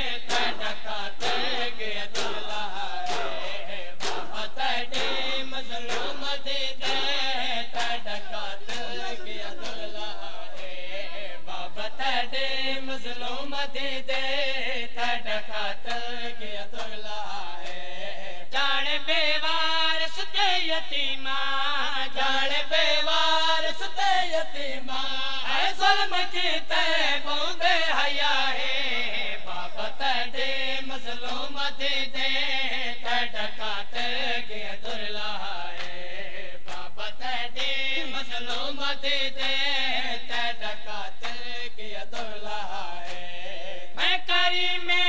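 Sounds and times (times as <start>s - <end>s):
crowd beating chests: 0.3s - 9.9s
man chanting a mournful lament: 7.2s - 12.0s.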